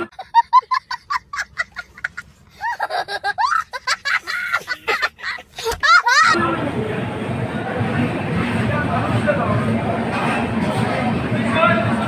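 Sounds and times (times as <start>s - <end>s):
young child laughing: 0.0s - 6.4s.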